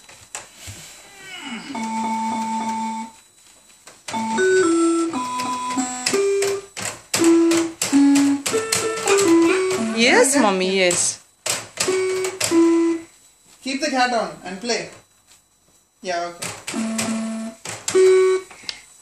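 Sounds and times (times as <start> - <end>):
electronic keyboard notes: 1.7 - 3.2, 4.1 - 11.1, 11.8 - 13.1, 16.5 - 18.5.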